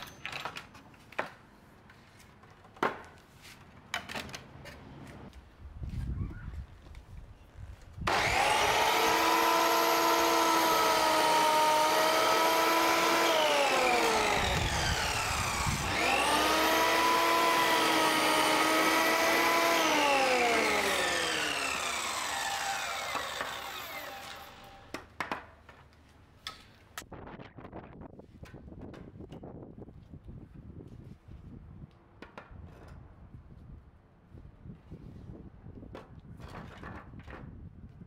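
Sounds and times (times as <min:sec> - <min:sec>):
mitre saw cutting wood: 0:08.0 - 0:25.0.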